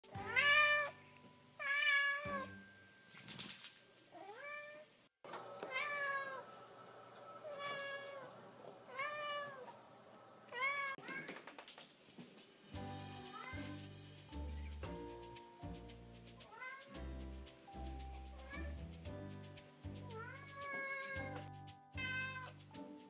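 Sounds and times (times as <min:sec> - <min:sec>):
cat meowing loudly: 0:05.6 - 0:06.5, 0:07.4 - 0:08.3, 0:20.5 - 0:21.3.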